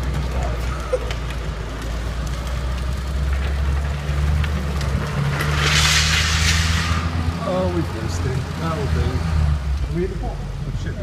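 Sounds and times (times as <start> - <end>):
wheels scraping on concrete: 0.0 - 10.2
vehicle low rumble: 0.0 - 11.0.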